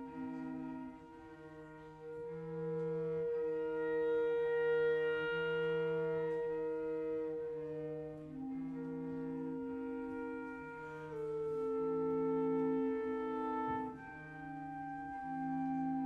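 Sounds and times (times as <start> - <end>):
cello: 0.0 - 16.0
clarinet: 0.0 - 16.0
flute: 0.0 - 16.0.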